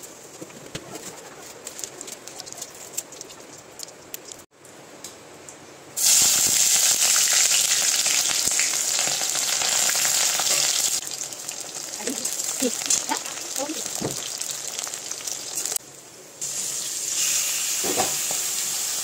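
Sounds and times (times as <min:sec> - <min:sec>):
spice seeds crackling in oil: 0:06.0 - 0:15.8
onions sizzling in oil: 0:06.0 - 0:19.0.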